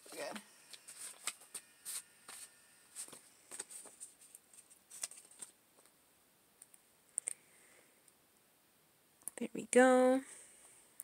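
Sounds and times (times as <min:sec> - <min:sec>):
paper sticker sheet rustling: 0:00.7 - 0:05.6.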